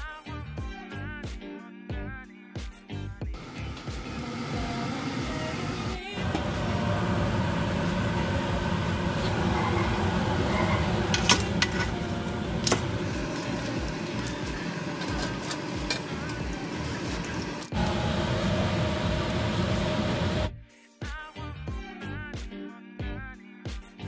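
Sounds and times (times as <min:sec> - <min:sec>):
water boiling: 0:03.4 - 0:20.5.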